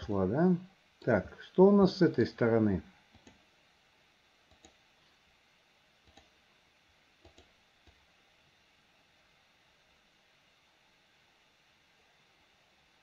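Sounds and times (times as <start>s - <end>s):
faint computer mouse clicks: 4.5s - 4.8s, 6.0s - 6.3s, 7.2s - 8.0s.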